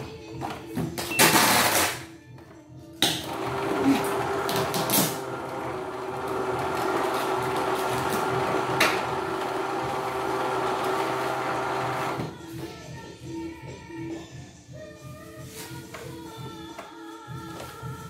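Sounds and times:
embroidery machine humming: 3.3s - 12.3s.

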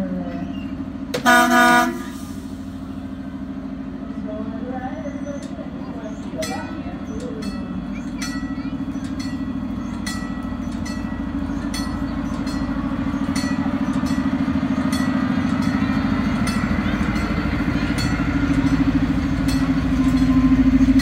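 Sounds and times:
miniature train engine drone: 0.0s - 21.0s
crossing signal bell ringing: 5.1s - 21.0s.

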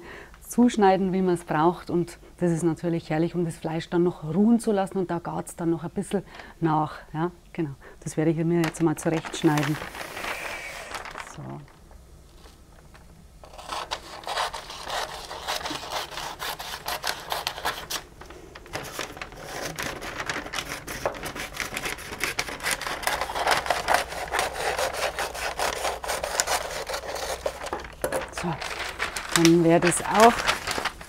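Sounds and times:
paper being cut and rustling: 13.4s - 18.0s, 18.6s - 31.0s.

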